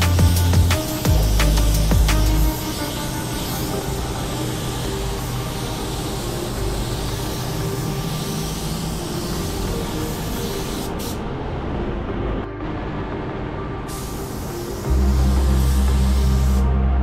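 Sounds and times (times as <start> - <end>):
paint spray gun hissing: 0.0 - 11.2, 13.9 - 16.8.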